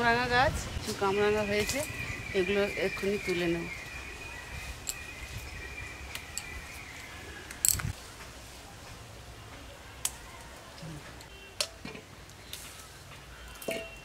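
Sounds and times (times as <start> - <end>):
branches clicking and snapping: 6.1 - 8.0, 10.0 - 14.0.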